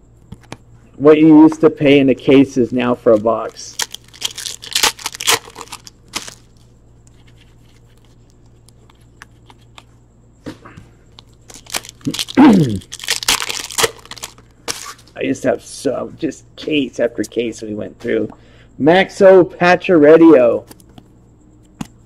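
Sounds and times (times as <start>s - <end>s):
cards rustling: 2.4s - 10.0s, 11.2s - 15.1s
foil wrapper tearing and crinkling: 2.6s - 6.6s, 11.5s - 15.1s.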